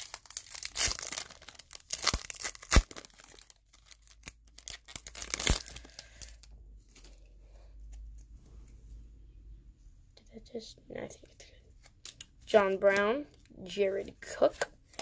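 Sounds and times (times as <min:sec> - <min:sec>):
foil pack tearing and crinkling: 0:00.0 - 0:06.4.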